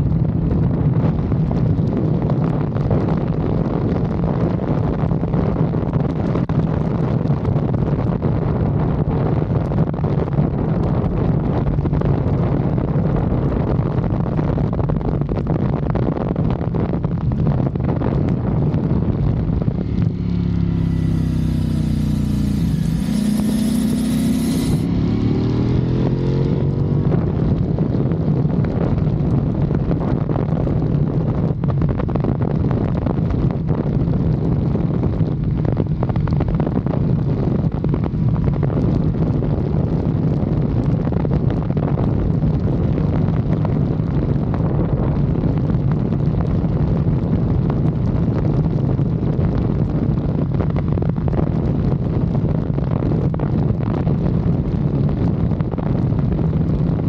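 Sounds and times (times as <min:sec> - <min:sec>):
wind noise on microphone: 0:00.0 - 0:57.0
motorcycle engine cruising: 0:18.4 - 0:29.6.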